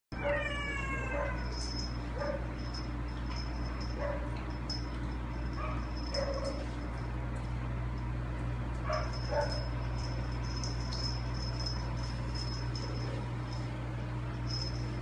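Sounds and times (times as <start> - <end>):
low steady hum: 0.1 - 15.0
dog whining: 0.2 - 1.6.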